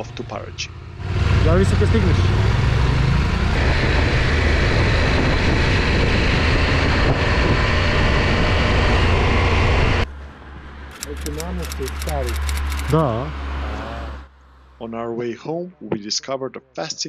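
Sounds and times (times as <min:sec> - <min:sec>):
heavy wind and road noise: 0:00.7 - 0:14.1.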